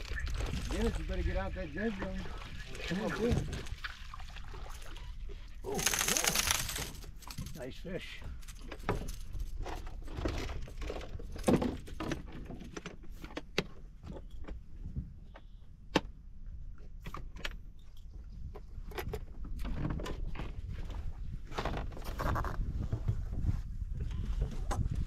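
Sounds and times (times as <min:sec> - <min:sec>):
fishing tackle clicking and rattling: 0:05.7 - 0:07.6, 0:08.3 - 0:12.2.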